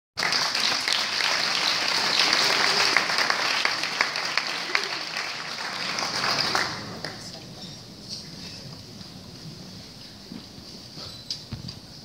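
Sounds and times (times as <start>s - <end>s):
audience applauding: 0.2s - 7.4s.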